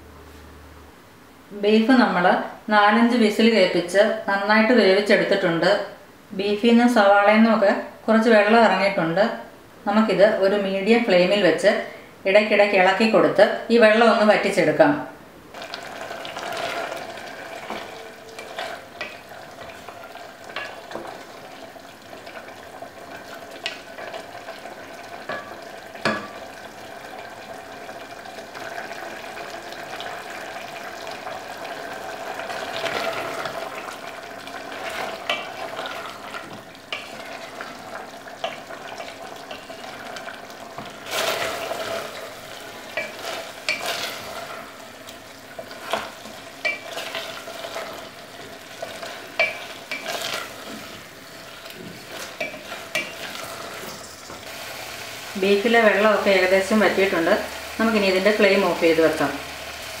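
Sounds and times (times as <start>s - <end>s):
meat simmering and sizzling: 15.4s - 60.0s.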